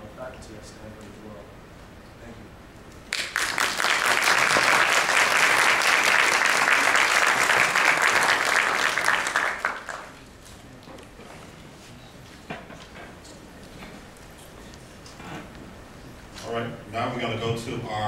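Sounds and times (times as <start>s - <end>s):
audience applauding: 3.1s - 10.2s.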